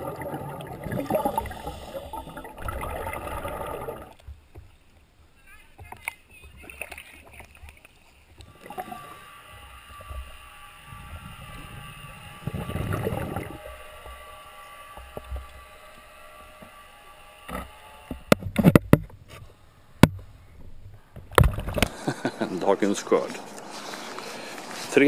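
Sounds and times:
muffled water sloshing and gurgling: 0:00.0 - 0:16.2, 0:20.0 - 0:25.0
knocks and splashes: 0:21.2 - 0:22.1.

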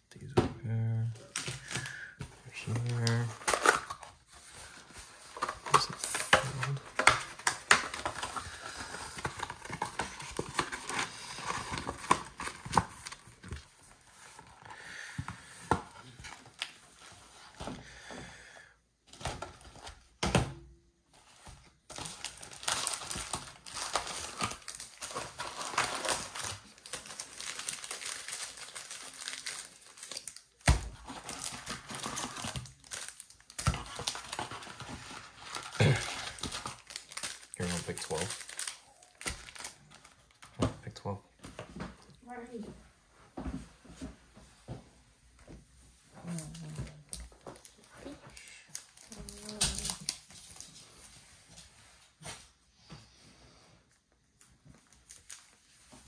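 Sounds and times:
packs tearing: 0:01.2 - 0:13.6, 0:21.9 - 0:40.4, 0:46.4 - 0:50.4
plastic wrapping crinkling: 0:01.2 - 0:14.4, 0:21.9 - 0:40.5, 0:46.2 - 0:51.1, 0:54.7 - 0:56.0.

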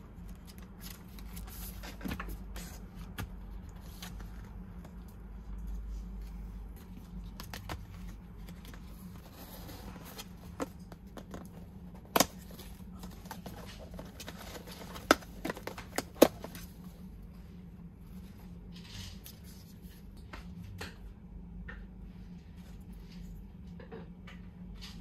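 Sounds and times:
cardboard and paper rustling: 0:00.1 - 0:16.9.

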